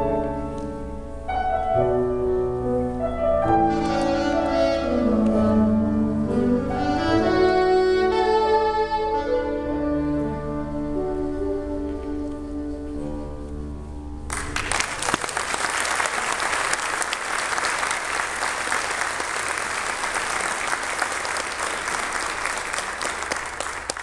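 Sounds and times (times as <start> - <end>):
saxophone and piano chord: 0.0 - 13.8
audience applause: 14.3 - 24.0.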